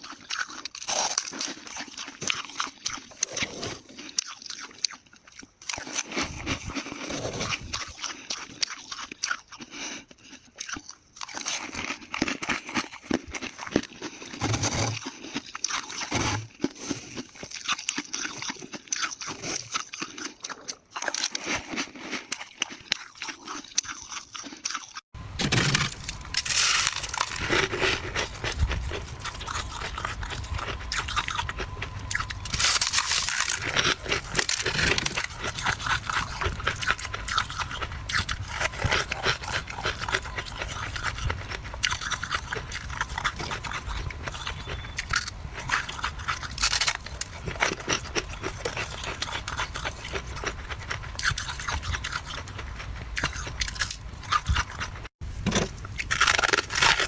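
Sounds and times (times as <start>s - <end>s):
frost being chewed crunching: 0.0s - 57.0s
steady low hum: 25.2s - 57.0s.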